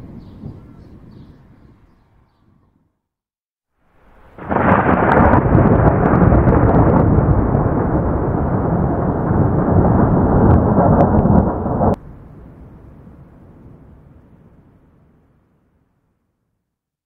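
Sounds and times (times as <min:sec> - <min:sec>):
thunder rumbling: 0:00.0 - 0:01.9, 0:03.9 - 0:15.2.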